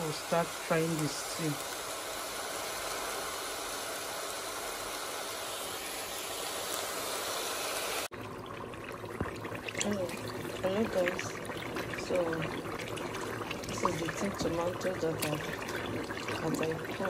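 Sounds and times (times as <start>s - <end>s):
steady hiss: 0.0s - 8.1s
stew crackling in a pot: 0.0s - 17.0s.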